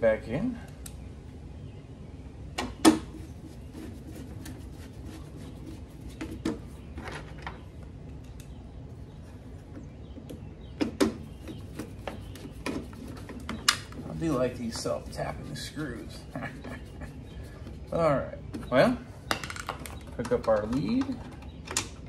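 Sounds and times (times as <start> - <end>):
tools clicking and knocking on metal: 19.3 - 22.0.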